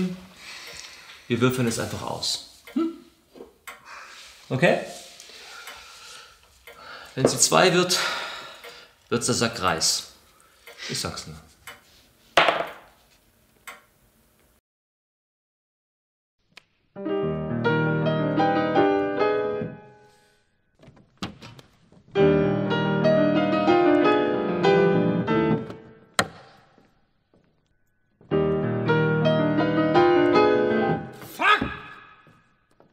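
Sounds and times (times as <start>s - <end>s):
piano music: 17.0s - 20.3s, 22.1s - 26.2s, 27.6s - 31.4s.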